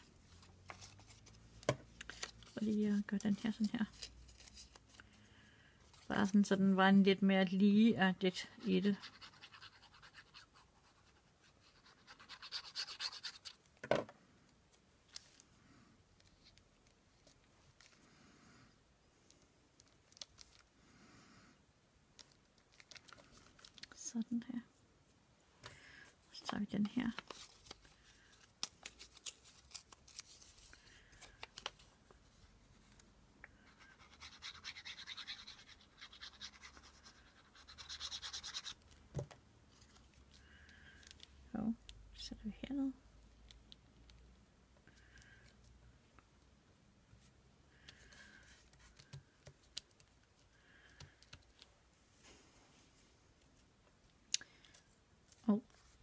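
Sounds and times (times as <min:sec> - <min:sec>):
scratchy strokes on paper: 0:08.6 - 0:13.6, 0:33.6 - 0:38.8.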